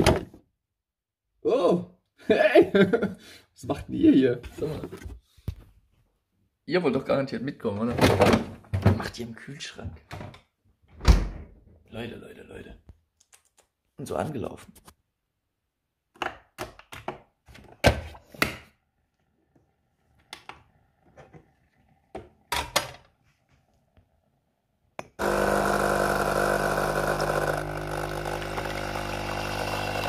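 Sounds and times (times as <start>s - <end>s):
coffee machine pump humming: 25.2s - 30.0s
coffee pouring: 25.2s - 30.0s.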